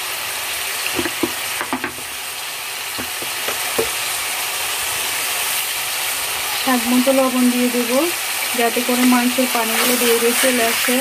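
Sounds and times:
meat sizzling in a pot: 0.0s - 11.0s
wooden spatula knocking on pot: 0.9s - 2.1s, 3.0s - 4.0s.

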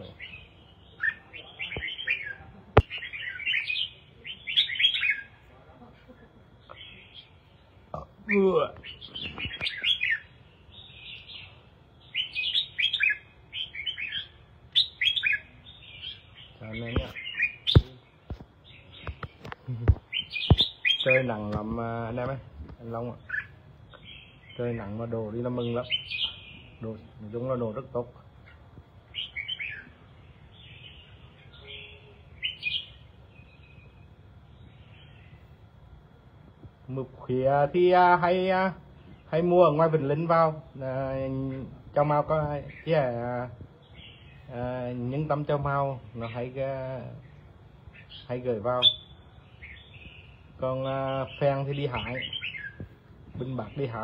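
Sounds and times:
bird singing whistled notes: 0.0s - 5.4s, 8.3s - 18.0s, 20.1s - 21.3s, 28.5s - 35.4s, 47.9s - 54.0s.

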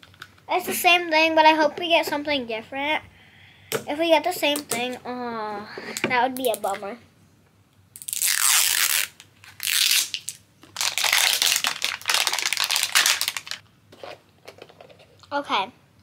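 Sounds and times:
plastic packaging crinkling and tearing: 8.0s - 13.6s.

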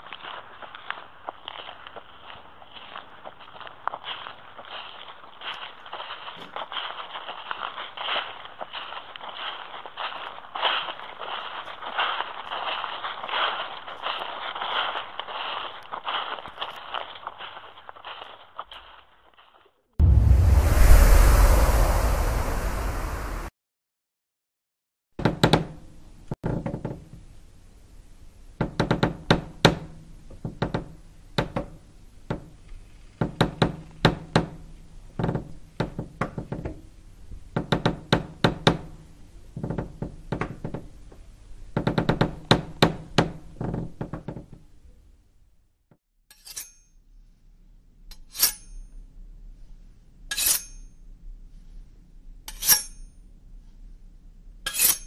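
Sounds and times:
low hum: 20.0s - 23.5s.

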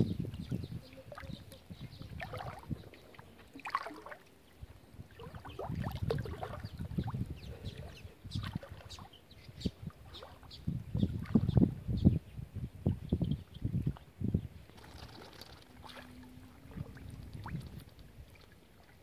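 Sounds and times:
water sloshing and splashing: 0.4s - 7.4s, 8.3s - 9.2s, 14.7s - 19.0s.

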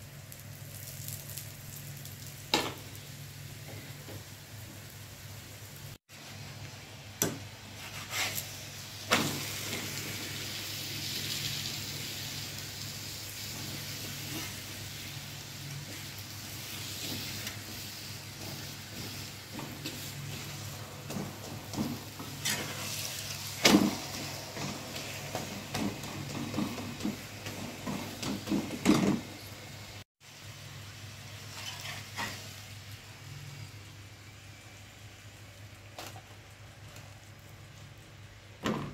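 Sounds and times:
oil sizzling under frying bread: 0.0s - 38.9s
metal spatula scraping bread: 7.8s - 8.5s, 22.3s - 23.3s, 31.5s - 32.4s.

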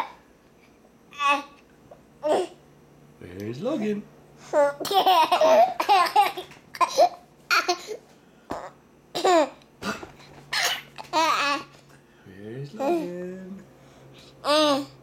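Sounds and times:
baby laughing: 4.6s - 8.0s, 10.6s - 11.7s.

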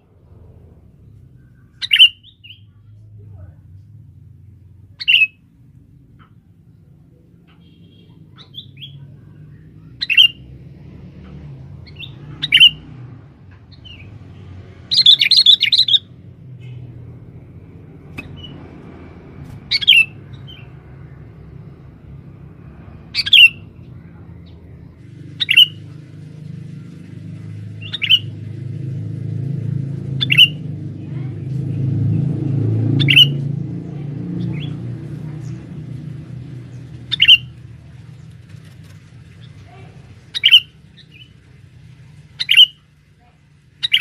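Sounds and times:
low steady rumble: 0.0s - 43.9s
bird giving sharp calls: 1.7s - 2.6s, 5.0s - 5.4s, 10.0s - 10.5s, 11.8s - 12.9s, 14.9s - 16.8s, 19.6s - 20.7s, 23.1s - 23.8s, 25.2s - 26.0s, 27.7s - 28.4s, 30.1s - 30.7s, 32.9s - 33.5s, 37.0s - 37.6s, 40.2s - 41.4s, 42.3s - 42.9s, 43.8s - 44.0s.

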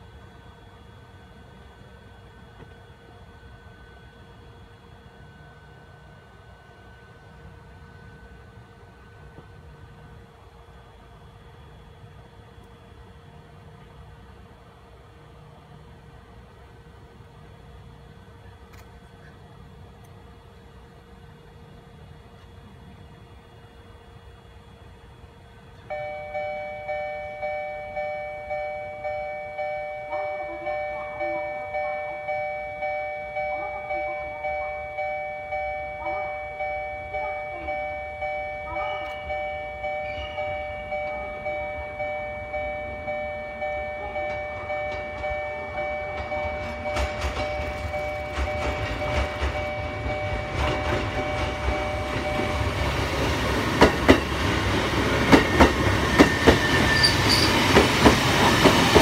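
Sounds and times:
train rumbling: 0.0s - 59.0s
level crossing bell ringing: 25.9s - 53.4s
train wheels clicking over rail joints: 43.1s - 59.0s.

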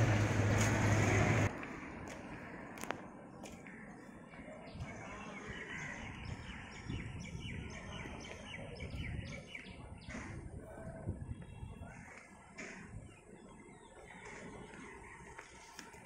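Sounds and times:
low outdoor rumble: 0.0s - 8.2s.

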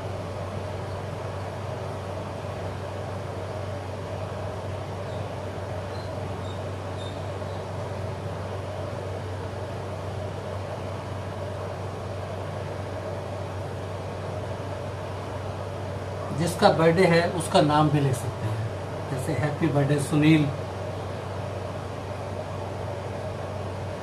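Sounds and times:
machine hum with hiss: 0.0s - 24.0s.

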